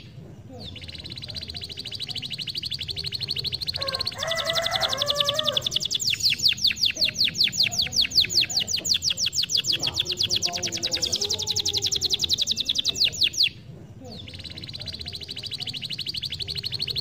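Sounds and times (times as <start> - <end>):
canary singing trill: 0.0 - 17.0.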